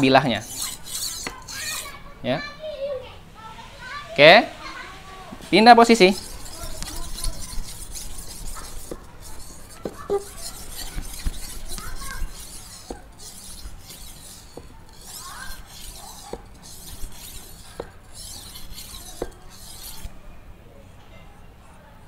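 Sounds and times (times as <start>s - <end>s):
blade scraping on whetstone: 0.0s - 2.0s, 5.5s - 20.2s.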